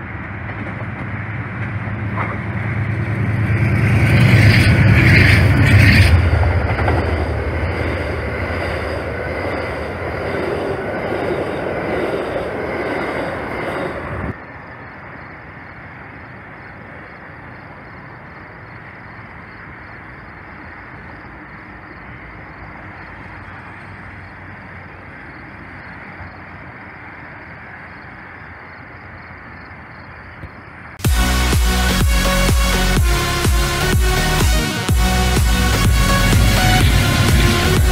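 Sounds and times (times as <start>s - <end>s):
train wheels rushing on rail: 0.0s - 14.4s, 34.8s - 37.9s
distant train rumble: 0.0s - 37.9s.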